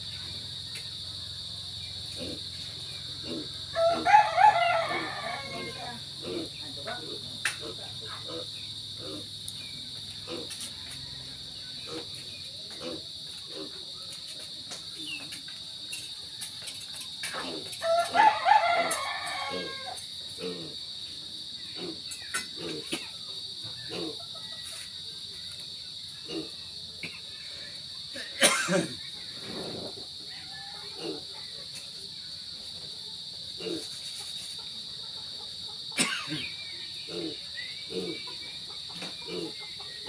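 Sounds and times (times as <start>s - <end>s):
insects droning: 0.0s - 40.0s
rooster crowing: 3.6s - 6.1s, 10.6s - 12.0s, 17.8s - 20.2s, 30.1s - 31.7s.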